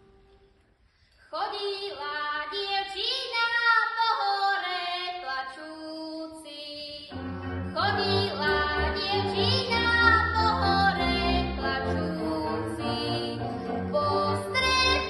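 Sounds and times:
girl singing folk song: 0:01.2 - 0:07.1, 0:07.7 - 0:15.0
folk band with bass line: 0:07.4 - 0:15.0.

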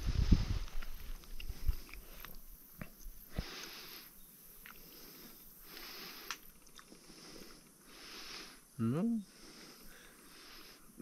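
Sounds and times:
breaths through the nose: 0:00.0 - 0:02.5, 0:03.1 - 0:11.0
man chewing food: 0:00.6 - 0:03.9, 0:04.6 - 0:07.8.

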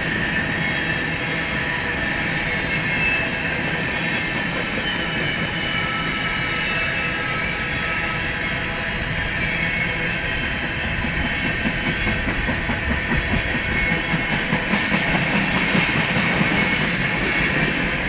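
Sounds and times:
train wheels clicking over rail joints: 0:10.4 - 0:18.0.

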